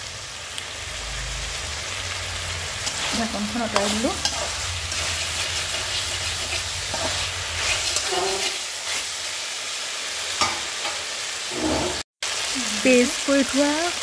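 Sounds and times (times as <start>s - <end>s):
oil sizzling: 0.0s - 14.0s
spatula scraping metal pan: 2.8s - 9.1s, 11.5s - 12.0s.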